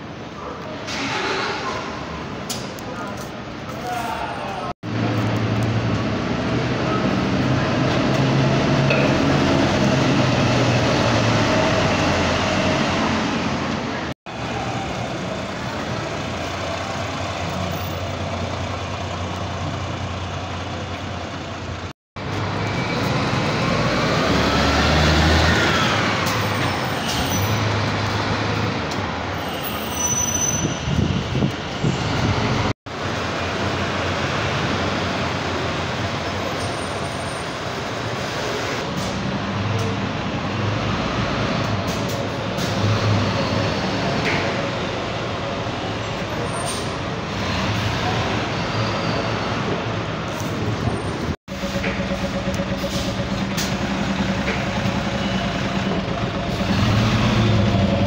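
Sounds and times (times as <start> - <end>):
bus diesel engines running: 0.0 - 58.0
engine whine: 51.5 - 58.0.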